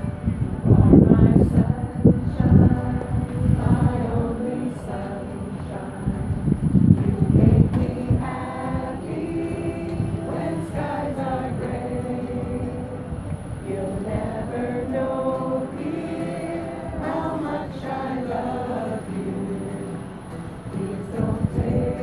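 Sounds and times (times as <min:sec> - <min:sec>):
crowd singing slow tune: 0:00.0 - 0:22.0.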